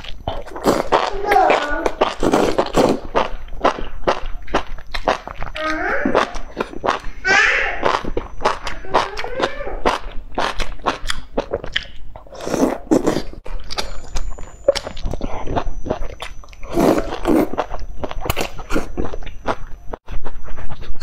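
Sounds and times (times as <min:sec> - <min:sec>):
slurping noodles: 0:00.0 - 0:03.8, 0:12.2 - 0:13.4, 0:14.8 - 0:17.7
wet chewing and lip-smacking: 0:00.0 - 0:07.2, 0:07.8 - 0:21.0.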